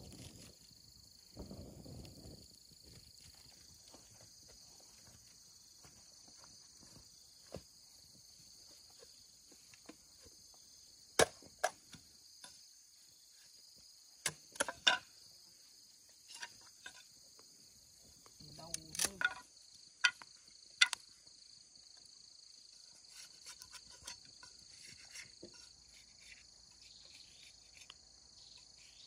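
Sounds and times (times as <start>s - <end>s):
insect chirring: 0.0s - 29.0s.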